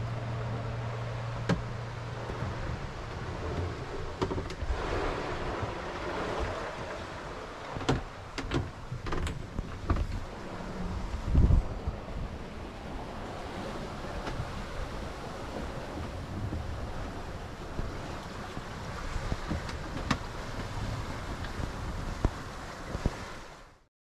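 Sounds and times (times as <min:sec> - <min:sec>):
rush of water: 0:00.0 - 0:23.9.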